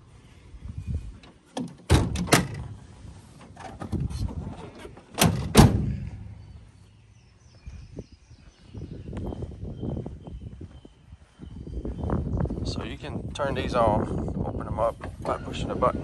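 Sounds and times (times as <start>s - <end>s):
tailgate metal clicks and knocks: 1.5s - 2.8s, 4.8s - 6.3s
tailgate latching slams: 1.6s - 2.8s, 3.4s - 6.3s.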